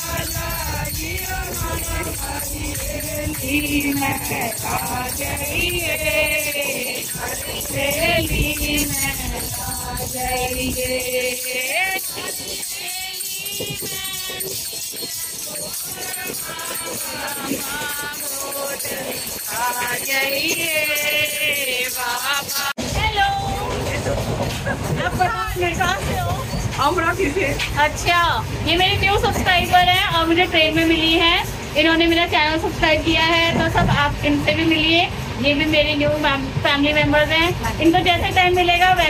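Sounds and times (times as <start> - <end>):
women singing together: 0.0 - 23.8
percussive beat: 0.0 - 26.5.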